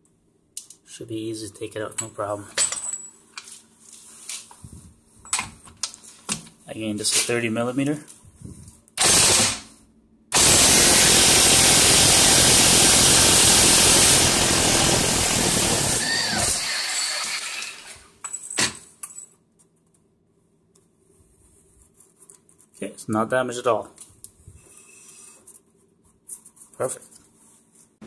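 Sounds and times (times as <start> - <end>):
impact wrench hammering: 10.3 - 16.7.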